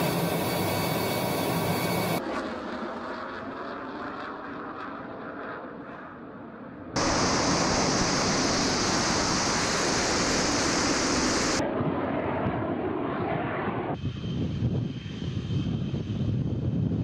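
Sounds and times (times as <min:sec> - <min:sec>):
jet rushing overhead: 0:07.0 - 0:17.0
quieter jet rumble: 0:07.0 - 0:17.0.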